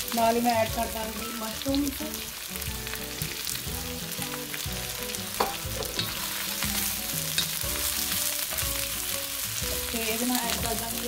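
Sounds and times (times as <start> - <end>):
vegetables sizzling in oil: 0.0 - 11.0
spatula knocking against wok: 5.4 - 6.2.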